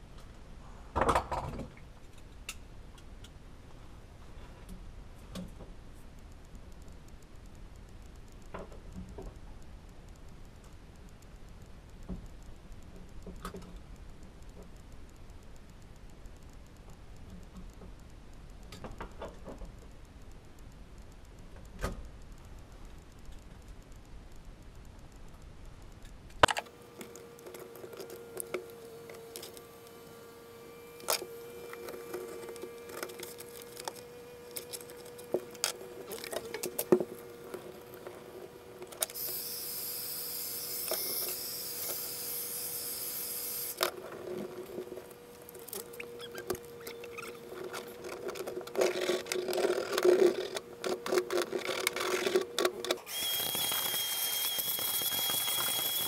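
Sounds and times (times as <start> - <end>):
faint steady hum: 0.0 - 56.0
shop vacuum hiss and whine: 26.7 - 35.2, 39.1 - 43.9, 52.9 - 56.0
heat gun blowing: 53.0 - 56.0.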